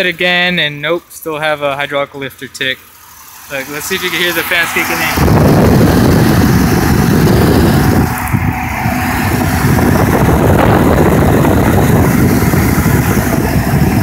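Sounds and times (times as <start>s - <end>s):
car engine idling: 0.0s - 14.0s
radiator cooling fans rushing: 0.0s - 14.0s.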